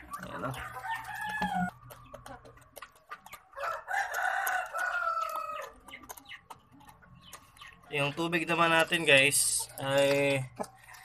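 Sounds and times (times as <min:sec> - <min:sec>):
rooster crowing: 0:03.6 - 0:05.7.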